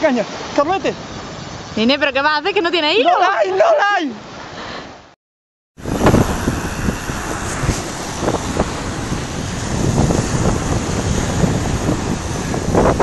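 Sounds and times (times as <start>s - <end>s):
wind buffeting microphone: 5.8s - 13.0s.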